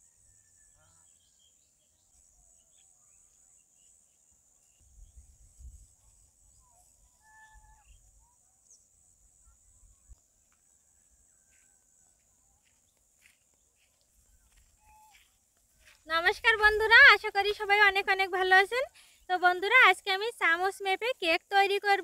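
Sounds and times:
high insect hiss: 0:03.3 - 0:07.2.

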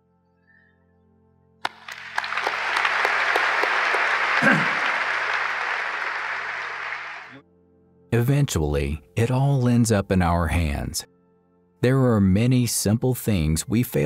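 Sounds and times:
audience applause: 0:01.6 - 0:07.4
faint background music: 0:07.4 - 0:14.0.

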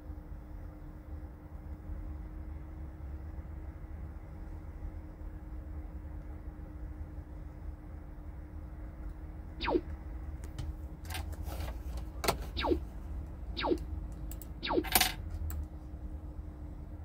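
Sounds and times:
faint steady hum: 0:00.0 - 0:17.0
squeaky chirps: 0:09.6 - 0:09.8, 0:12.6 - 0:12.8, 0:13.6 - 0:13.8, 0:14.6 - 0:15.0.

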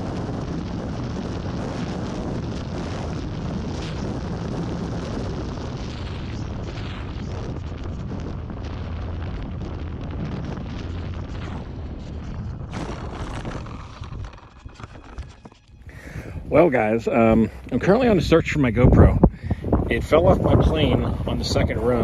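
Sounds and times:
wind rushing over camera: 0:00.0 - 0:22.0.

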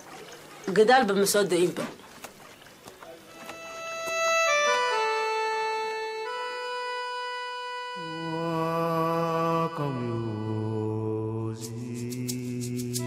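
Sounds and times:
organ-like keyboard music: 0:03.3 - 0:13.0.

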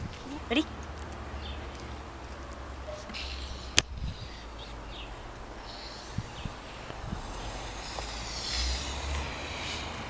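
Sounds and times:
wind rumbling on microphone: 0:00.0 - 0:02.0, 0:03.6 - 0:10.0
gas hissing from bottle: 0:05.6 - 0:10.0.

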